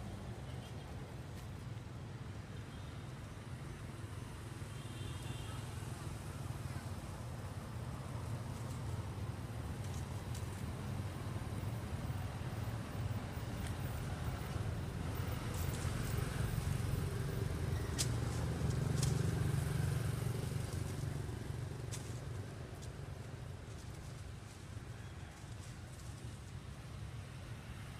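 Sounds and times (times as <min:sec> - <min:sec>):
vehicle engine rumble passing: 0:09.1 - 0:24.5.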